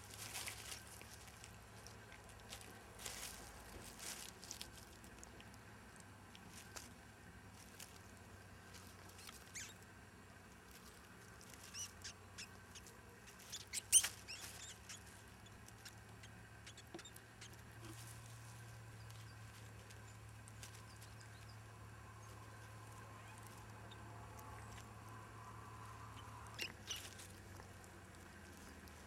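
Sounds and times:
mouse squeaking: 0:09.1 - 0:09.8, 0:11.5 - 0:18.1, 0:18.9 - 0:21.6, 0:22.2 - 0:24.9, 0:25.8 - 0:27.6.

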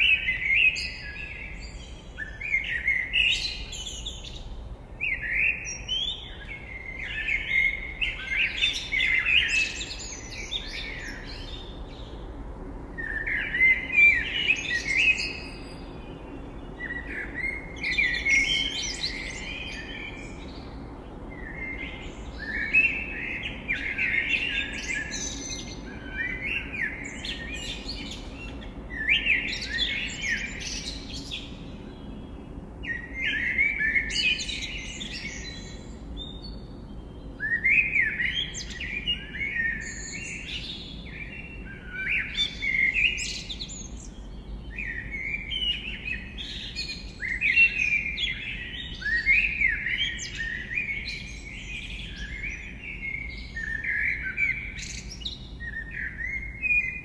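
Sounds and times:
songbirds twittering: 0:00.0 - 0:57.0
low city rumble: 0:03.0 - 0:57.0.

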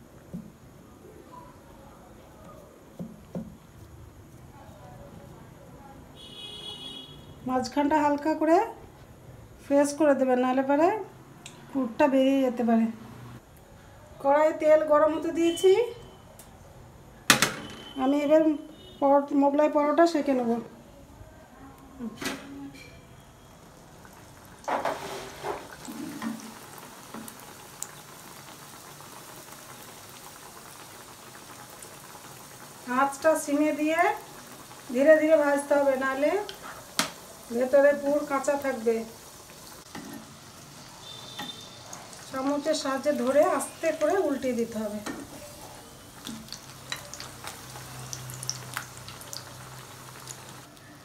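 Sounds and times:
food sizzling in hot oil: 0:23.2 - 0:50.8.

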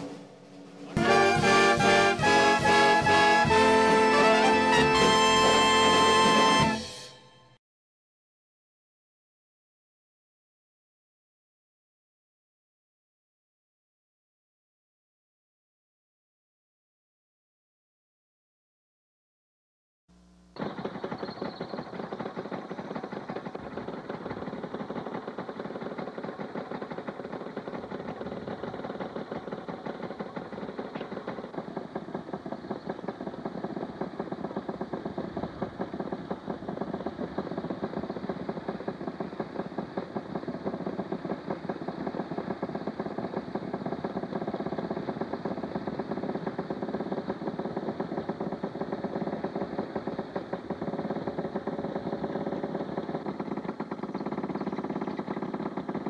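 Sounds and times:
two-stroke engines idling: 0:00.0 - 0:06.8, 0:20.6 - 0:56.0.

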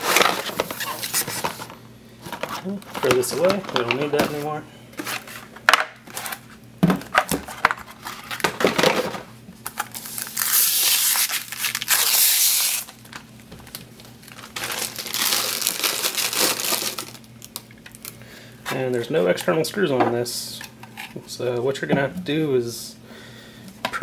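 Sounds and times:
plastic film crinkling as peeled: 0:09.6 - 0:18.2.

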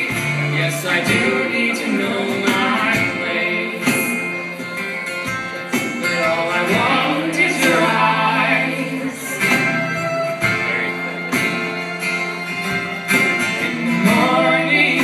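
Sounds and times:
person singing: 0:00.0 - 0:04.6, 0:05.7 - 0:10.8, 0:13.4 - 0:15.0
acoustic guitar: 0:00.0 - 0:15.0.

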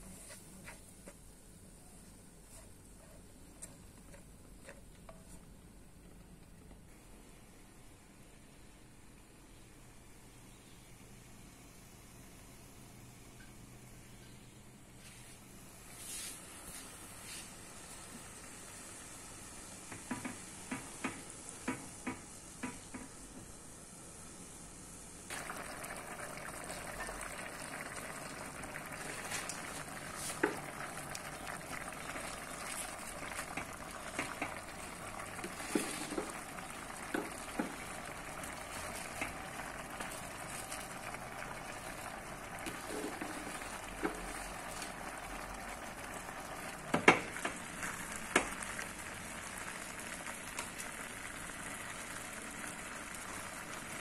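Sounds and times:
stew bubbling: 0:25.3 - 0:54.0.

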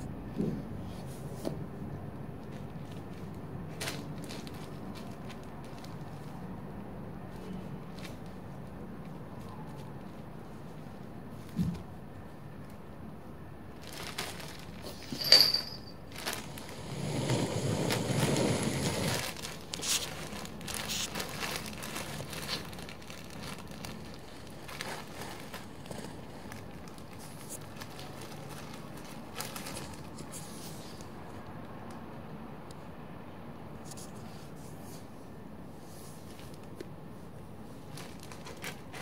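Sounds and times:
plastic bag crinkling: 0:02.4 - 0:06.6, 0:13.7 - 0:30.5, 0:37.8 - 0:39.0.

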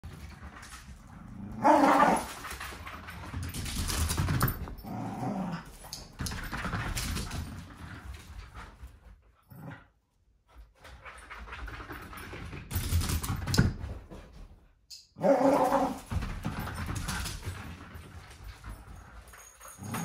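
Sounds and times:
dog growling and whining: 0:01.1 - 0:02.4, 0:04.7 - 0:05.9, 0:15.2 - 0:16.1, 0:19.7 - 0:20.0.

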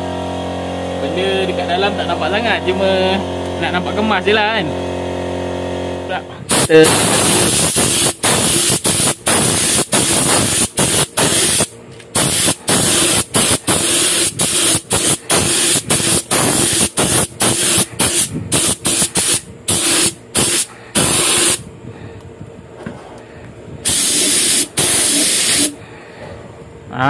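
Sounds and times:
spray gun hissing: 0:06.5 - 0:21.6, 0:23.8 - 0:25.8.

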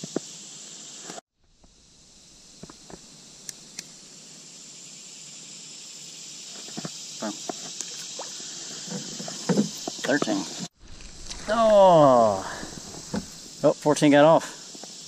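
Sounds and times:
insects shrilling: 0:00.0 - 0:15.0
knocks and rustles handling fish: 0:08.8 - 0:10.4, 0:12.6 - 0:13.4.

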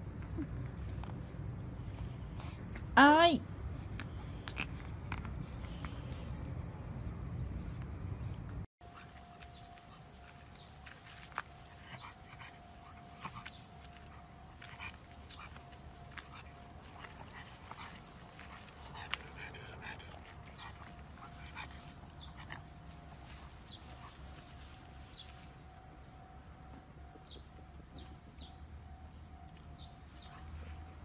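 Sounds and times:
dog sniffing and snuffling: 0:00.1 - 0:25.7, 0:29.8 - 0:31.0
grass and leaves rustling: 0:08.8 - 0:26.2.

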